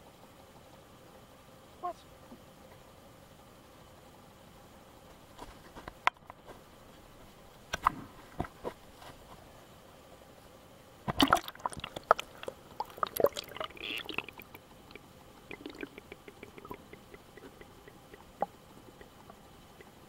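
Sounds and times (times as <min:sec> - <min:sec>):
underwater clicks and crackles: 0:11.1 - 0:20.0
water splashing against camera: 0:11.1 - 0:20.0.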